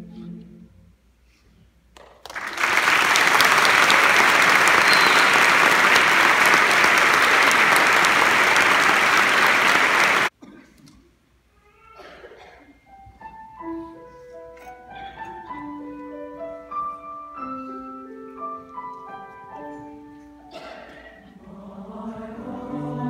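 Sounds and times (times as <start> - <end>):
audience applauding: 2.0 - 10.3
choir singing: 21.2 - 23.0.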